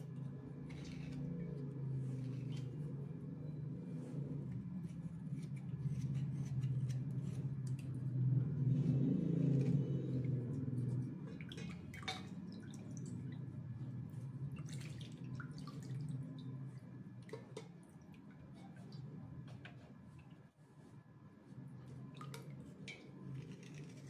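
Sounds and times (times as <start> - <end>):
low steady hum: 0.0 - 24.0
knife scraping slate: 0.6 - 3.0, 4.8 - 7.6
light clicks and drips: 5.4 - 20.5, 21.8 - 24.0.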